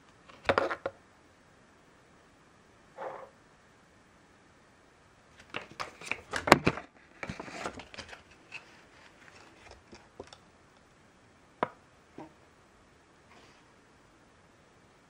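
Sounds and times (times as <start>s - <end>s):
glossy paper crinkling: 7.0s - 10.4s.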